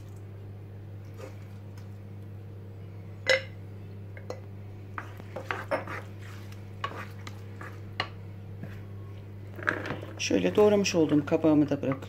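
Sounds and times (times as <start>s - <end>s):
spoon scraping pan: 5.0s - 7.9s
spoon scraping glass jar: 5.4s - 6.1s.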